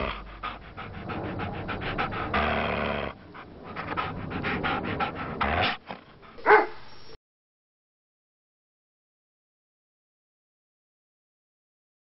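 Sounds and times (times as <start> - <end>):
dog panting: 0.0 - 6.8.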